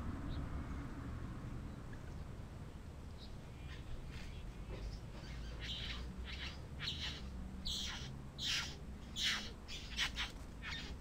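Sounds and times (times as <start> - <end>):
bird giving rasping calls: 5.2 - 11.0.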